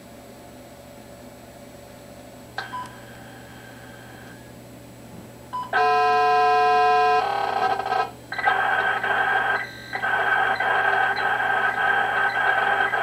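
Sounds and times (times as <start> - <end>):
steady multi-pitch data tone: 5.8 - 13.0.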